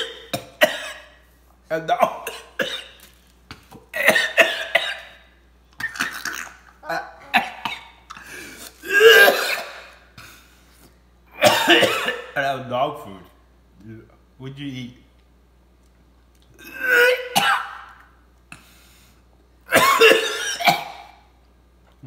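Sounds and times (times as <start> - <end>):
man coughing: 0.0 - 1.2, 1.8 - 3.0, 3.9 - 5.2, 5.8 - 10.0, 11.4 - 12.4, 16.7 - 17.8, 19.7 - 21.2
man gagging: 6.4 - 7.6
man clearing his throat: 11.4 - 12.3.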